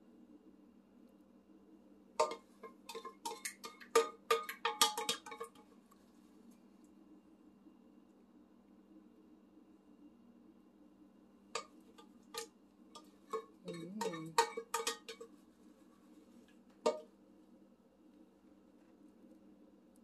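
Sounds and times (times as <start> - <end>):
low steady hum: 0.0 - 20.0
dishes and utensils clicking: 2.2 - 5.6, 11.6 - 15.4, 16.9 - 17.1.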